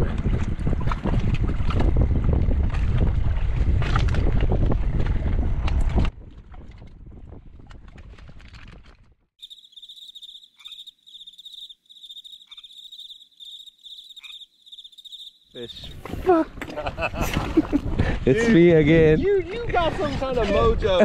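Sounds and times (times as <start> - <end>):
wind buffeting microphone: 0.0 - 9.1, 14.8 - 21.0
insect trilling: 9.4 - 15.9.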